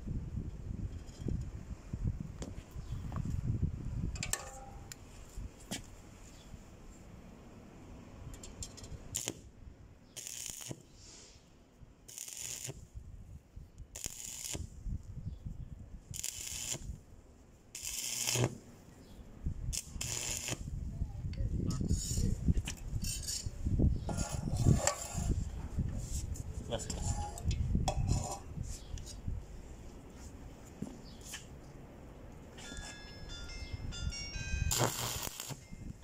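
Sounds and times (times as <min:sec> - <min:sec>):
welding arc crackling and hissing: 0:09.2 - 0:09.5, 0:10.2 - 0:10.9, 0:12.1 - 0:12.8, 0:14.0 - 0:14.7, 0:16.1 - 0:16.9, 0:17.8 - 0:18.6, 0:19.7 - 0:20.7, 0:34.7 - 0:35.6.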